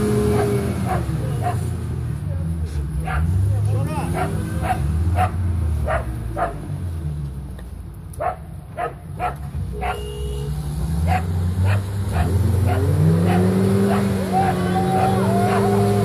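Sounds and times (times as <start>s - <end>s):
vehicle engine running: 0.0s - 16.0s
dog barking: 0.3s - 1.6s, 3.0s - 3.4s, 4.1s - 6.6s, 8.2s - 10.2s, 11.1s - 15.8s.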